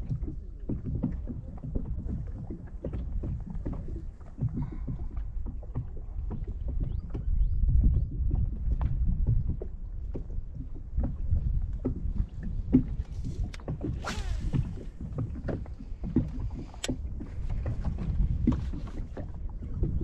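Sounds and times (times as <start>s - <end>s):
water lapping against boat hull: 0.0s - 20.0s
wind rumble on microphone: 0.0s - 20.0s
fishing rod cast swish: 13.1s - 15.1s.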